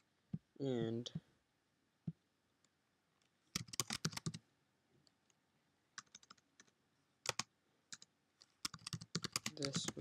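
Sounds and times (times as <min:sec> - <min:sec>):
computer keyboard typing: 0:03.5 - 0:04.4, 0:06.0 - 0:10.0.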